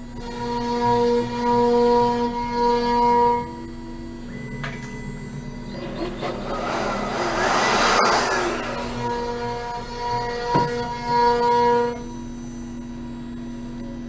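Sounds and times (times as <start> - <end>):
router spindle whining: 0.0 - 12.1
cordless blower whooshing: 5.8 - 9.9.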